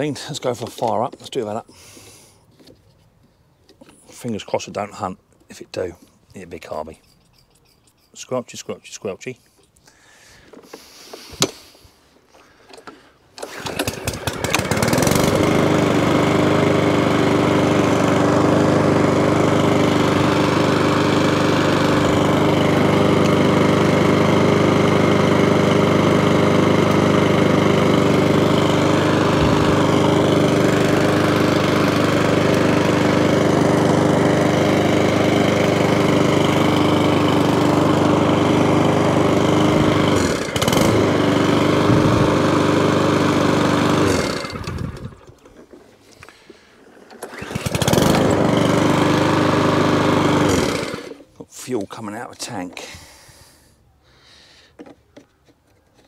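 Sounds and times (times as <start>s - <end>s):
lawnmower engine pull-started: 0.0s - 3.1s, 3.7s - 7.2s, 8.2s - 53.7s, 54.3s - 56.0s.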